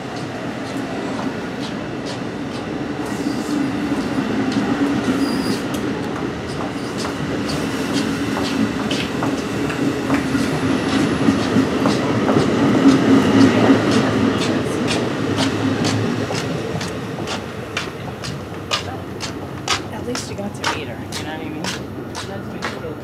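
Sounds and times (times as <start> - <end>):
low train hum: 0.0 - 23.0
train wheels clicking over rail joints: 0.0 - 23.0.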